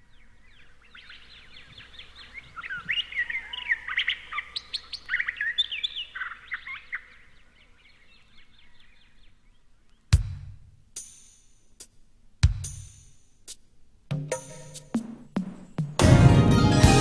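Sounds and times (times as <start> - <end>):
recorded birdsong chirps and whistles: 0.0 - 10.3.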